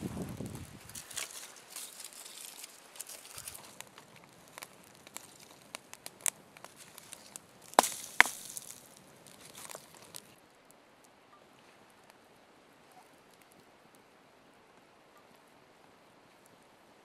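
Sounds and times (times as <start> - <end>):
campfire crackling: 0.0 - 17.0
twigs snapping: 0.4 - 10.4.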